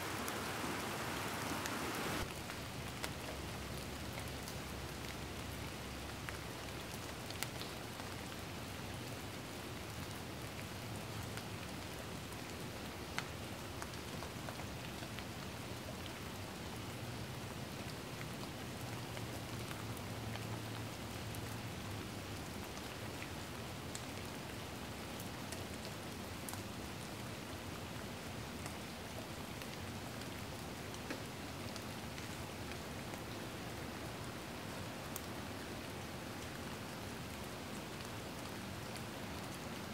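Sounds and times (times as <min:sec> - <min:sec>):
steady rain falling: 0:00.0 - 0:39.9
faint drip ticks: 0:31.0 - 0:31.3.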